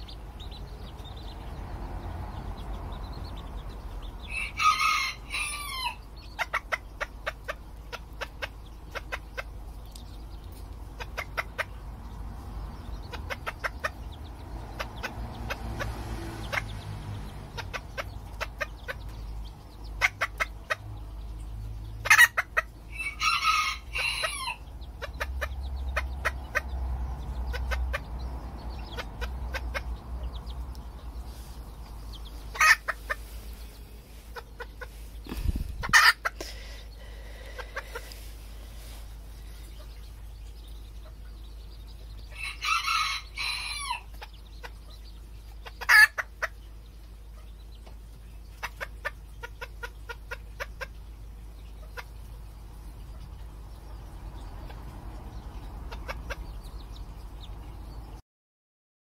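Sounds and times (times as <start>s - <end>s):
chicken clucks: 4.2s - 11.9s, 12.9s - 21.0s, 22.0s - 40.3s, 42.1s - 57.7s
rooster crowing: 4.3s - 6.0s, 22.9s - 24.6s, 42.4s - 44.1s.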